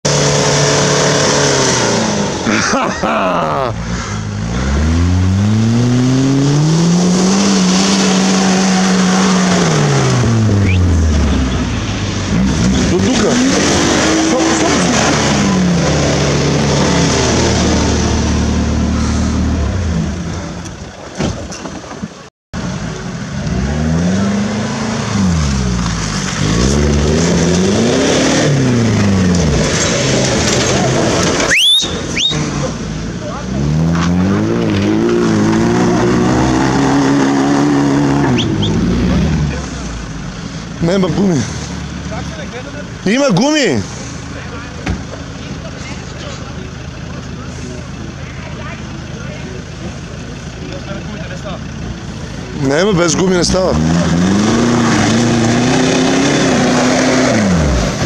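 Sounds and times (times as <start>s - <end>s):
suv engine revving: 0.0s - 21.0s, 22.6s - 58.0s.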